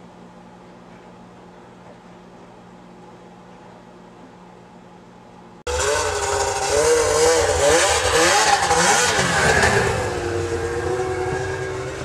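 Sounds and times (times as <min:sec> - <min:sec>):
snowmobile engine revving: 0:05.7 - 0:12.0.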